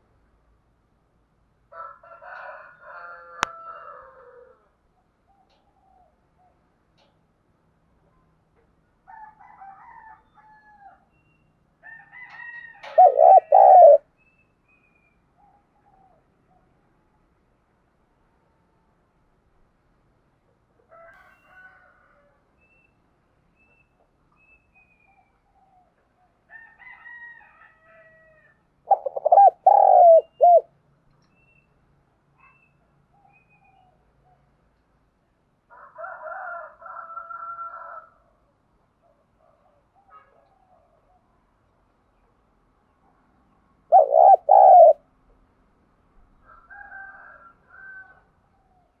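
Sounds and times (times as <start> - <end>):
faint bird calls: 12.8 - 14.0, 28.9 - 30.7, 43.9 - 45.0
dove cooing: 12.8 - 14.1, 28.9 - 30.7, 43.9 - 45.0
high-pitched bird calls: 43.9 - 45.0.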